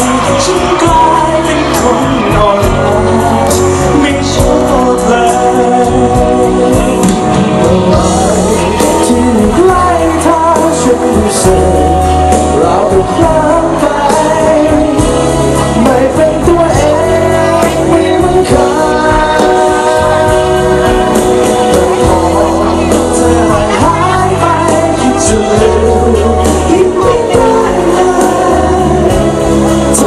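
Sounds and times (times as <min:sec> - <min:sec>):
man singing into microphone: 0:00.0 - 0:30.0
pop backing music with bass: 0:00.0 - 0:30.0.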